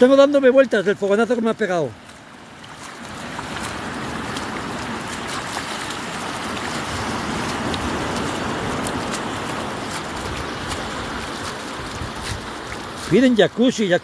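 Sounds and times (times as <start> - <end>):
sea surf washing up beach: 0.0 - 14.0.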